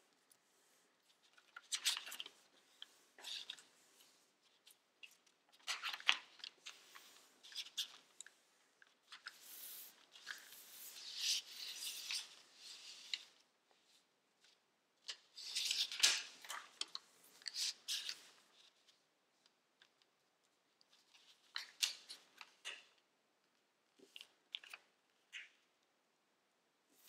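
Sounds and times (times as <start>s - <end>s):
paper folding and crinkling: 0.1s - 22.8s.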